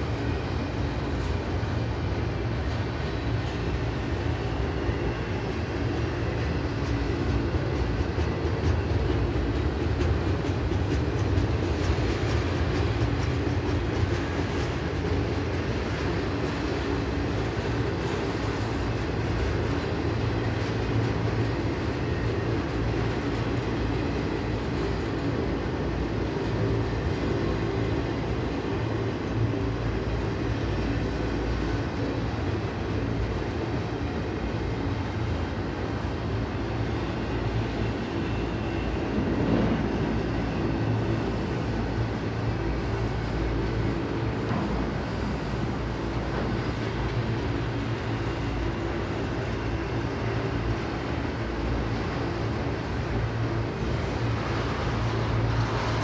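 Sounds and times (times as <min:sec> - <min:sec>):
freight train wheels rumbling: 0:00.0 - 0:56.0.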